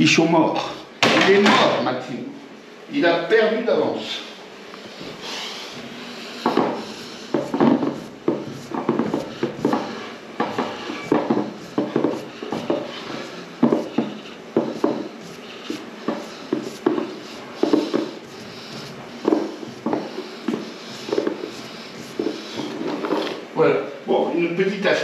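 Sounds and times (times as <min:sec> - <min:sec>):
hand rubbing balls on plastic table: 0:04.0 - 0:23.6.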